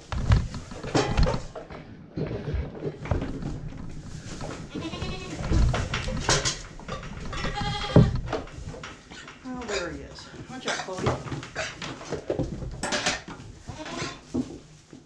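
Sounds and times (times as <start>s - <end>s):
goats bleating: 4.7s - 5.4s, 7.4s - 8.1s.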